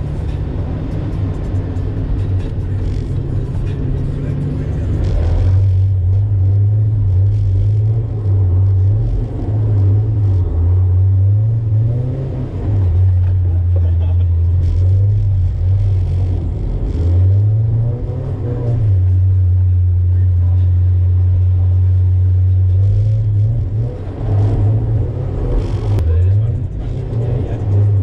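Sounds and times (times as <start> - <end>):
car engine revving: 0.0 - 28.0.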